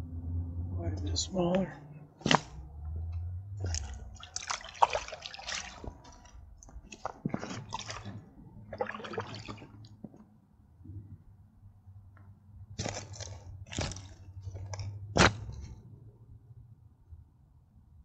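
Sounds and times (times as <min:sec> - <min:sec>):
water splashes and drips: 0:02.2 - 0:02.6, 0:03.6 - 0:10.2, 0:12.8 - 0:15.5
wet squishy fish handling: 0:03.6 - 0:10.3, 0:12.8 - 0:15.7.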